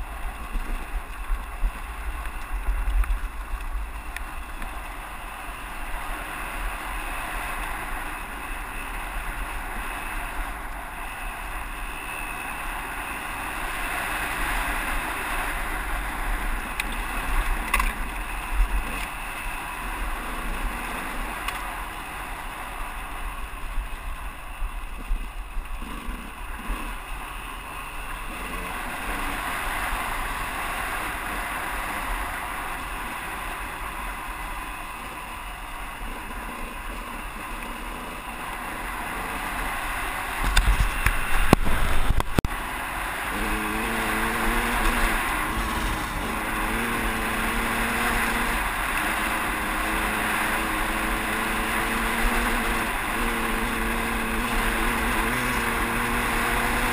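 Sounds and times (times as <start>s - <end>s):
dirt bike engine running: 0.0s - 56.9s
wind noise: 40.0s - 56.9s.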